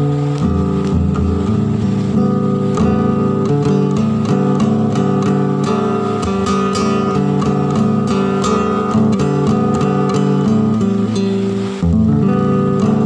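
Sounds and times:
acoustic guitar playing: 0.0 - 13.0.

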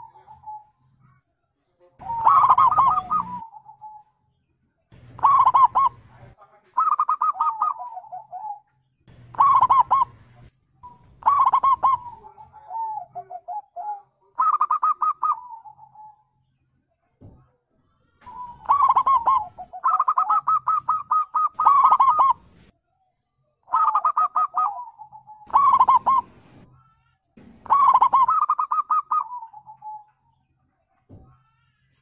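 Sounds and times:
dove cooing: 0.0 - 1.2, 2.0 - 4.1, 4.9 - 16.2, 18.2 - 22.7, 23.7 - 26.7, 27.5 - 30.2.

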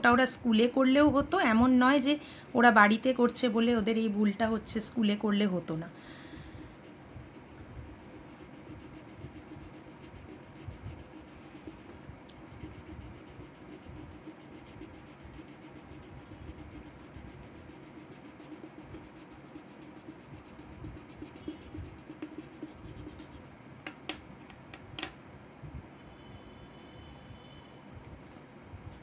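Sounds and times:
crayon scratching on paper: 0.6 - 4.8, 6.2 - 23.7.

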